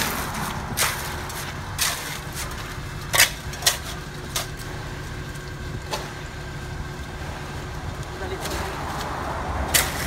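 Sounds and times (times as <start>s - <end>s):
shovels knocking and scraping: 0.0s - 4.6s, 8.4s - 10.0s
concrete mixer truck rumbling: 0.0s - 10.0s.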